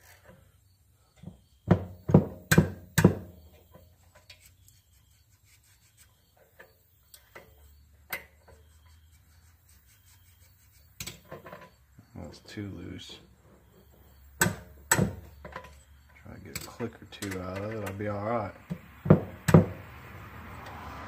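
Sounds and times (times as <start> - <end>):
hand tools knocking on engine: 1.7 - 3.3, 19.1 - 19.8.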